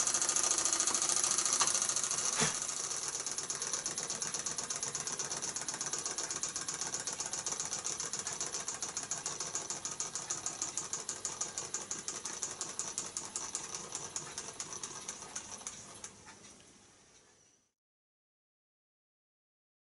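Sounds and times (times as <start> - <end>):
steam hiss: 0.0 - 3.8
toy steam engine ticking: 0.0 - 16.5.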